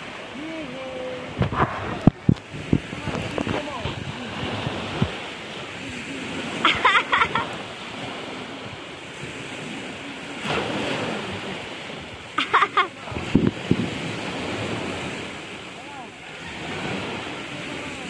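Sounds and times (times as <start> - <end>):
small waves breaking on beach: 0.0 - 18.0
low thumps: 1.4 - 4.1.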